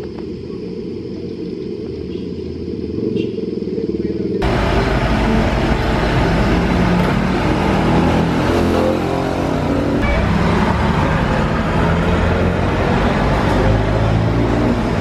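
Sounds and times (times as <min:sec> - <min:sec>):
street traffic noise: 0:00.0 - 0:15.0
vehicle engine running: 0:04.4 - 0:15.0.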